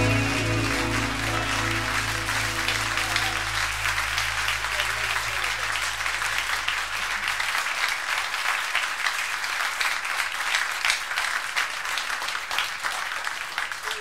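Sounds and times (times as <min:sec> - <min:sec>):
low held tone: 0:00.0 - 0:06.2
audience applauding: 0:00.0 - 0:14.0.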